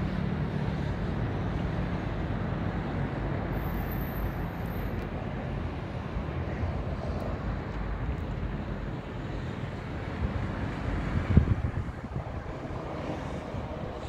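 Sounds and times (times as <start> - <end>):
distant jet engines roaring: 0.0 - 14.0.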